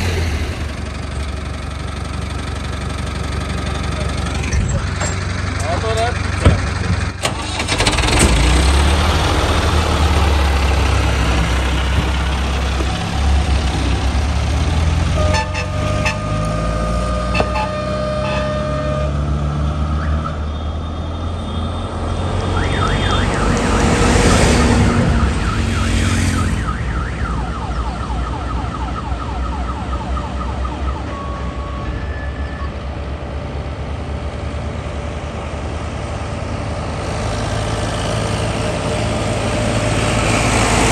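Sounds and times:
heavy vehicle engine running: 0.0 - 28.4, 30.3 - 40.9
horn-like tone: 15.2 - 19.3.

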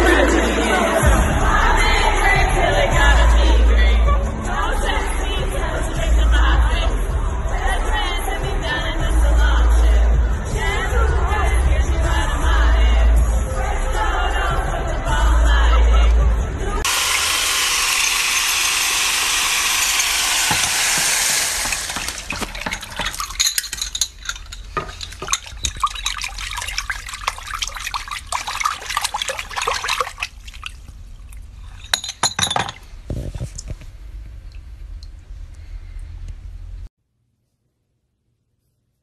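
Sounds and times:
vibratory tumbler rattling: 17.9 - 30.3
water splashes in basin: 21.3 - 32.1
small clinks of items: 21.9 - 28.3, 31.2 - 33.8.

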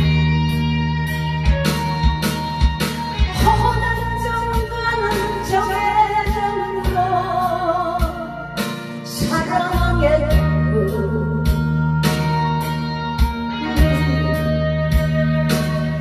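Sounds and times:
backing track with guitar and drums: 0.0 - 16.0
woman singing into microphone: 3.3 - 12.4, 13.5 - 16.0.

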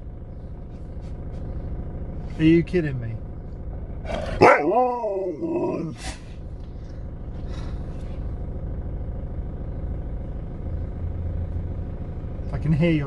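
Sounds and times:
low steady rumble: 0.0 - 13.0
dog howling vocalisation: 4.3 - 6.0.

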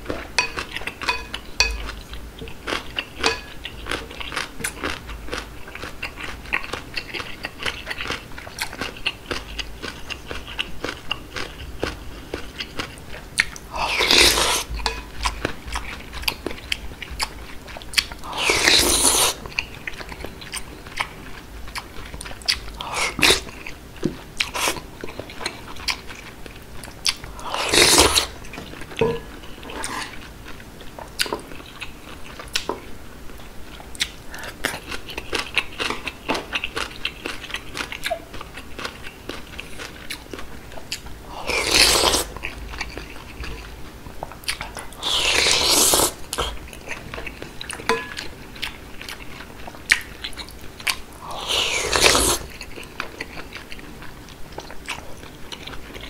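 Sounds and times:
slurping noodles: 18.3 - 19.4, 27.4 - 28.3, 41.3 - 42.3, 45.0 - 46.4, 51.2 - 52.5
wet chewing: 33.8 - 56.0.

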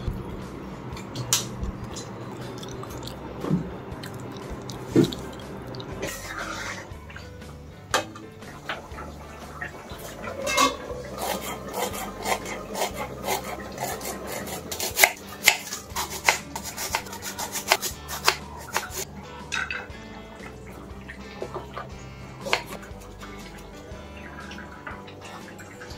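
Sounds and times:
knife slicing onion on wooden board: 11.2 - 19.0.

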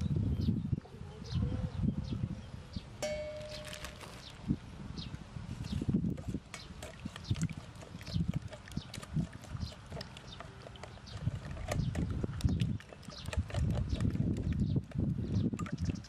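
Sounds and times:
eggs squelching in a bowl: 6.0 - 16.0.

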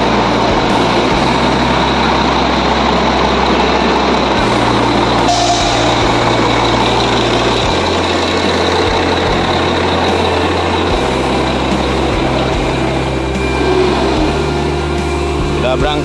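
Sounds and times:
buses idling: 0.0 - 16.0
deep hum changing pitch: 4.4 - 15.6.

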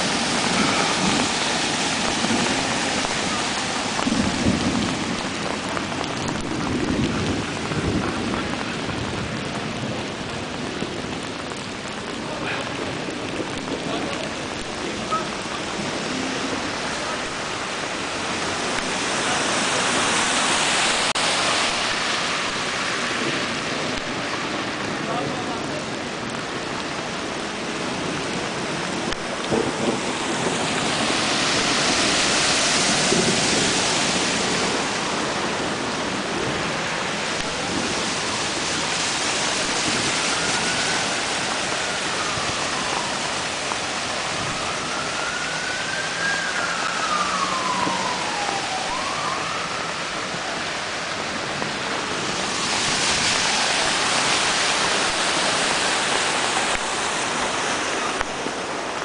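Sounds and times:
heavy rain: 0.0 - 59.0
running floodwater: 0.0 - 59.0.

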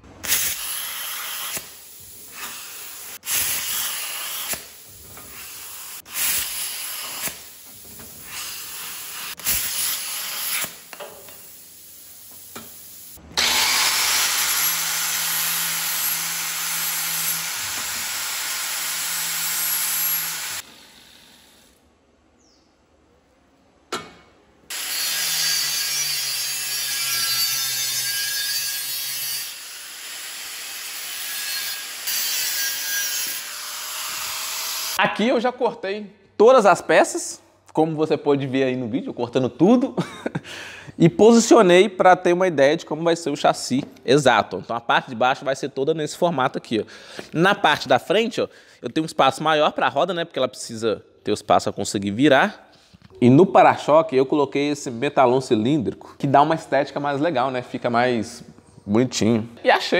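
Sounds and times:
angle grinder cutting steel: 0.2 - 7.6, 8.2 - 11.5, 13.4 - 21.7, 24.7 - 35.0
plasma cutter hissing: 0.2 - 13.2.

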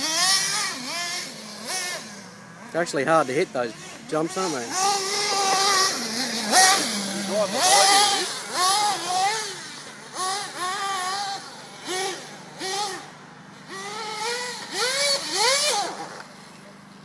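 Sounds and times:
nitro engine revving: 0.0 - 16.8.

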